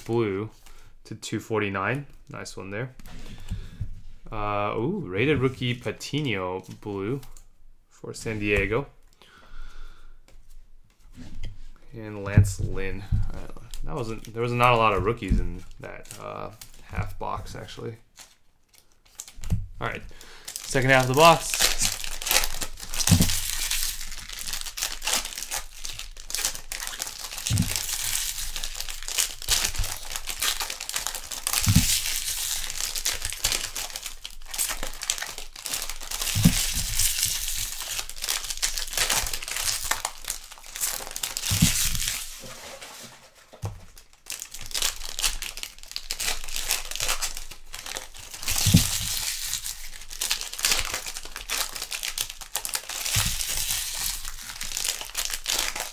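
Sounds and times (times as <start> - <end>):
card wrappers crinkling and tearing: 12.8 - 55.9.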